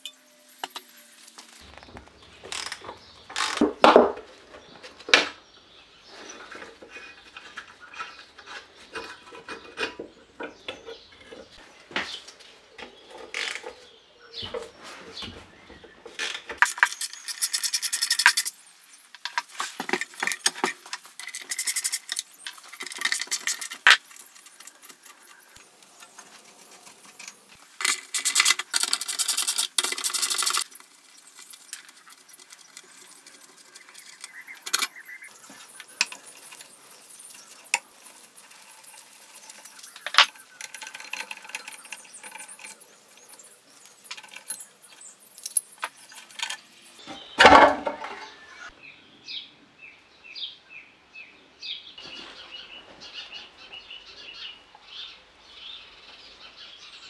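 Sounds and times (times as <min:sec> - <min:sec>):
metal parts clinking: 0:35.7 - 0:46.8.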